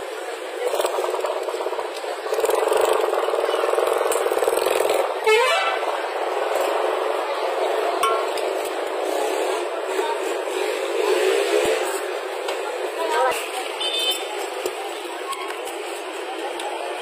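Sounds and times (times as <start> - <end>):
street traffic with engines: 0.0 - 17.0.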